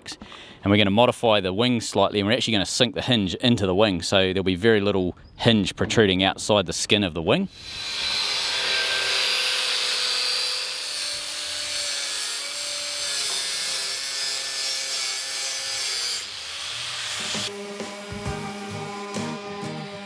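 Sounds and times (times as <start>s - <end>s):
angle grinder cutting steel pipe: 7.5s - 20.0s.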